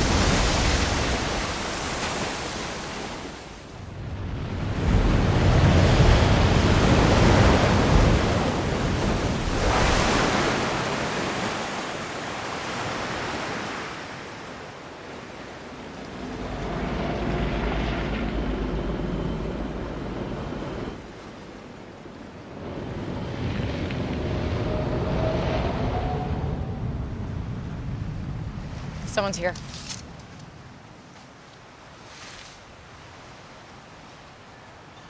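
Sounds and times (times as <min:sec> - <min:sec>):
rushing churning floodwater: 0:00.0 - 0:19.0
low rumbling aircraft drone: 0:15.1 - 0:29.2.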